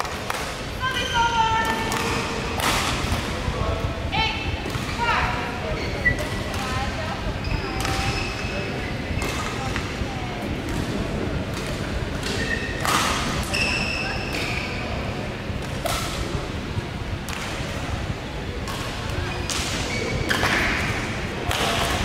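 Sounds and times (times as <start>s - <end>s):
murmur of voices: 0.0s - 22.0s
rackets hitting shuttlecock: 1.6s - 3.4s, 4.6s - 5.0s, 7.8s - 8.2s, 9.2s - 10.0s, 10.6s - 14.7s, 15.6s - 16.4s, 17.3s - 17.8s, 18.6s - 22.0s
shoe squeaks on court: 7.4s - 8.9s, 12.3s - 12.8s, 13.4s - 15.0s, 19.3s - 20.7s.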